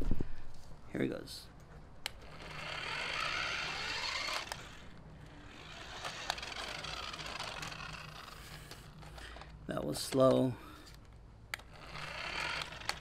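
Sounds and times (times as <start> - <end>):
electric motor whining: 2.1 - 9.5, 11.6 - 13.0.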